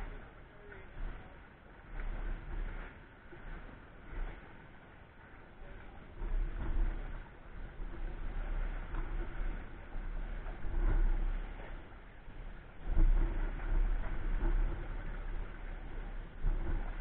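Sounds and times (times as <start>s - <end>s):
sea washing against rocks: 0.0s - 17.0s
wind buffeting microphone: 5.5s - 17.0s.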